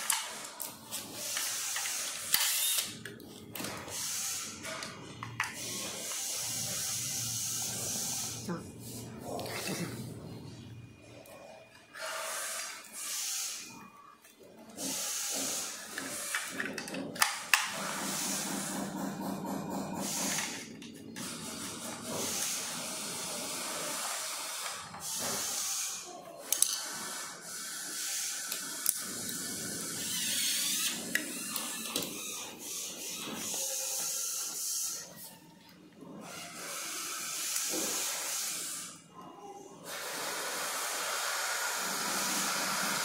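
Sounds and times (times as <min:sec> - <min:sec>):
hiss: 0:12.0 - 0:13.6, 0:36.7 - 0:39.0, 0:39.9 - 0:43.0.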